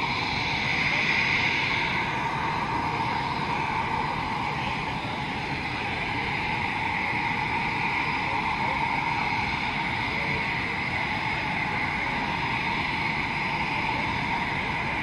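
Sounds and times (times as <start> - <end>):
jet engines whining: 0.0 - 15.0.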